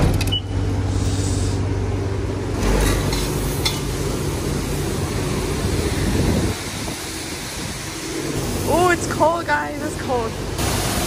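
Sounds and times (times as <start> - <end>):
hiss: 0.9 - 1.7, 5.5 - 9.0, 10.6 - 11.0.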